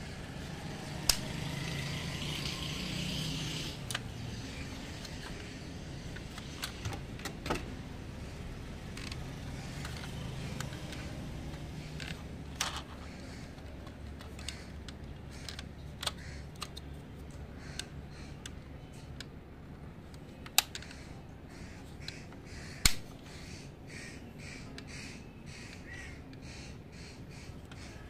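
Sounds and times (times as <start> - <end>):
model car parts clicking: 0.8 - 1.8, 2.4 - 7.7, 8.9 - 19.4, 20.0 - 21.2.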